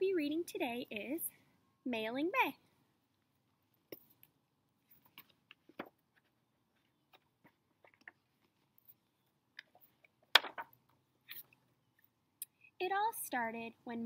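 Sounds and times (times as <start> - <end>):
book pages rustling: 4.9 - 9.0.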